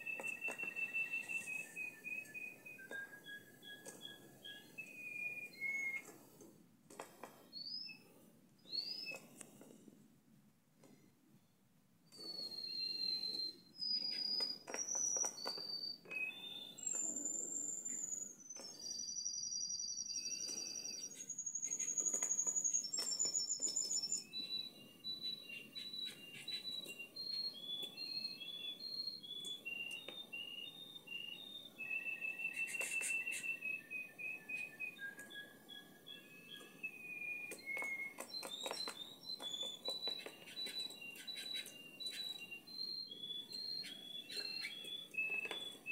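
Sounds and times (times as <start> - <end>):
canary singing: 0.0 - 6.1, 7.5 - 9.3, 12.1 - 45.9.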